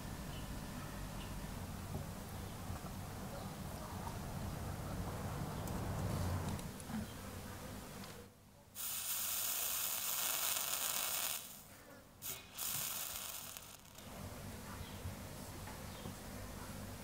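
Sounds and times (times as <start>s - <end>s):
flux sizzling under soldering iron: 8.8s - 14.1s.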